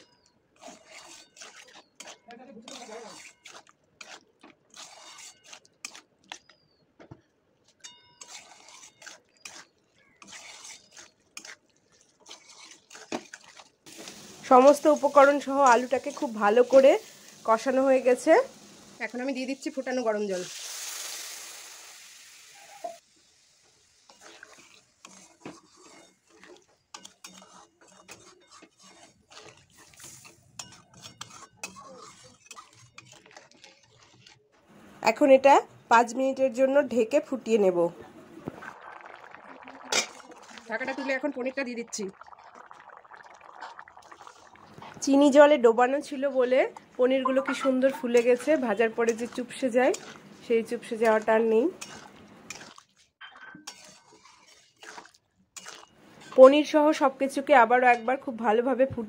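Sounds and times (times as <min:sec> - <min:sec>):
spatula scraping metal pan: 0:00.6 - 0:06.6, 0:07.8 - 0:11.6, 0:12.2 - 0:17.4, 0:24.0 - 0:34.4, 0:47.3 - 0:56.6.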